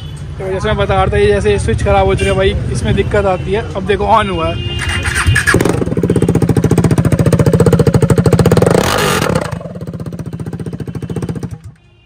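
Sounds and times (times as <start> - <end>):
motorcycle engine running loud: 5.0 - 11.7.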